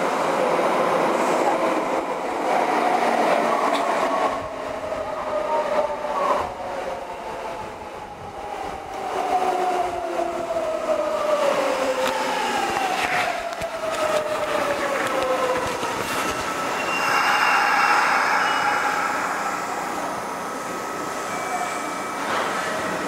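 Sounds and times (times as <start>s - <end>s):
wheels rumbling on rails: 11.4s - 17.3s.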